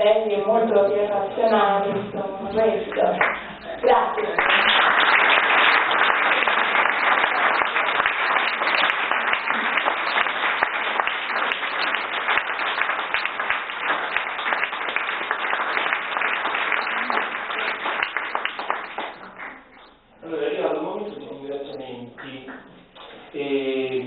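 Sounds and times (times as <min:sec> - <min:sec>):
audience applause: 0:03.2 - 0:19.9.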